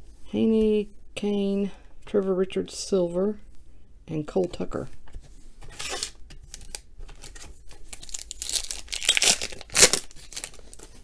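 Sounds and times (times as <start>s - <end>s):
foil wrapper crinkling and tearing: 5.8s - 11.0s.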